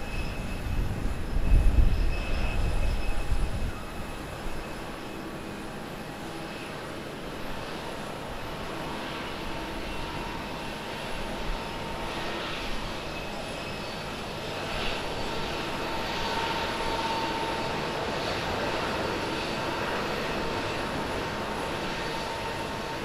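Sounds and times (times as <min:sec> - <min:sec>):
jet engine noise: 0:00.0 - 0:23.0.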